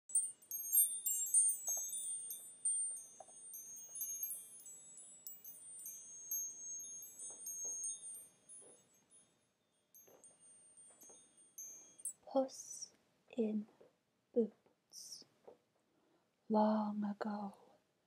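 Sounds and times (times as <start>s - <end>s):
high-pitched chimes ringing: 0.1s - 12.9s.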